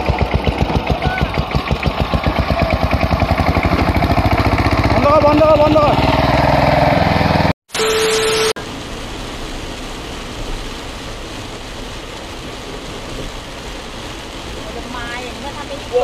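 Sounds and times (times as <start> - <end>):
two-wheel tractor engine chugging: 0.0 - 6.1
tyres rushing on wet motorway: 0.0 - 16.0.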